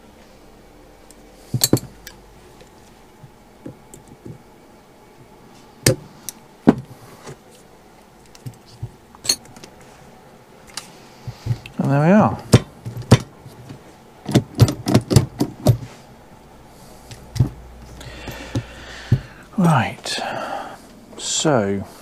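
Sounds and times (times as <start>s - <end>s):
pliers clicking on metal pins: 9.2s - 9.6s.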